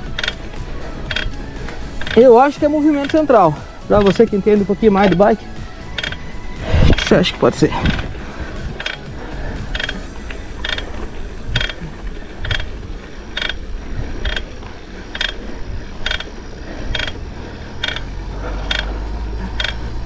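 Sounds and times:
bike drivetrain clicking: 0.0 - 20.0
low rumble: 0.0 - 20.0.

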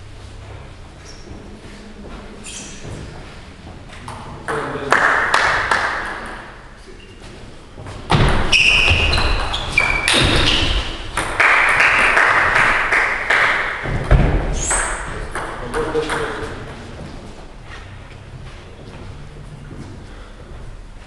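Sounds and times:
short high squeaks: 2.4 - 2.9, 8.5 - 11.0.

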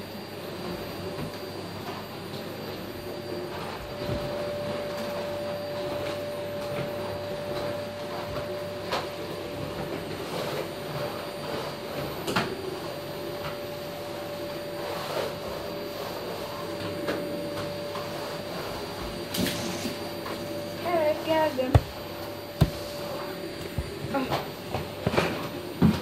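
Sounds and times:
sharp knocks: 21.7 - 22.0.

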